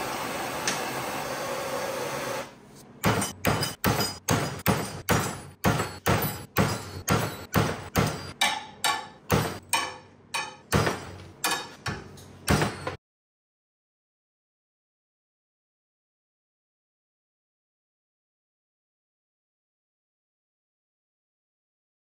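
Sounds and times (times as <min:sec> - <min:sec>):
hammer on steel bar: 0:03.0 - 0:13.0.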